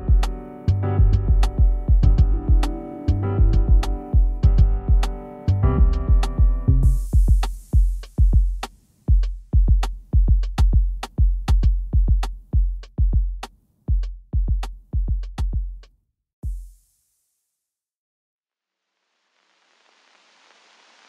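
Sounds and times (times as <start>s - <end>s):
hip-hop drum beat: 0.0s - 0.4s, 1.0s - 5.2s, 5.8s - 17.0s
short hiss: 19.2s - 21.0s.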